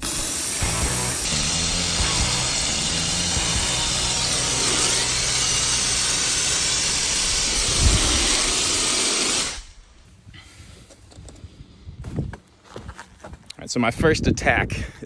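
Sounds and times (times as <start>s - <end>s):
air duster can hissing: 0.0s - 9.8s.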